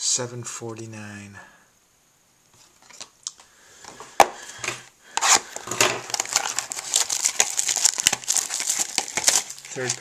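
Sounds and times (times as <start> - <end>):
cards sliding on wooden tabletop: 3.8 - 6.0
foil card pack crinkling: 5.1 - 10.0.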